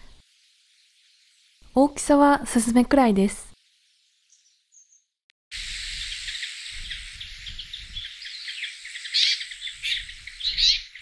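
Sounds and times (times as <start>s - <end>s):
flock of birds calling: 5.7s - 11.0s.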